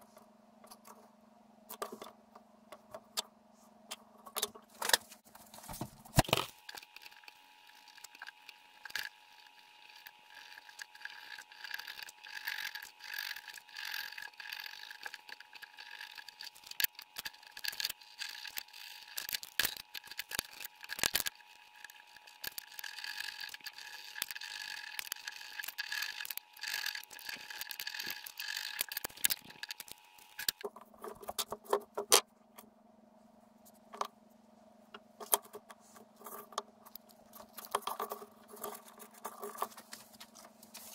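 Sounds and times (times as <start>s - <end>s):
needle and thread through leather: 35.2s - 40.9s.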